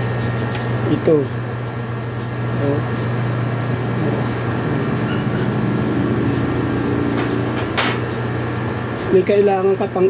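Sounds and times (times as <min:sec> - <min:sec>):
air conditioner humming: 0:00.0 - 0:10.0.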